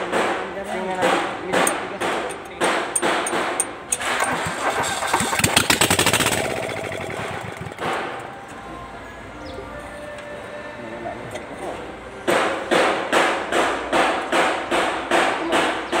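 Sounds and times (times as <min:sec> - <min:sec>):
diesel engine cranking and running: 0:03.0 - 0:08.6.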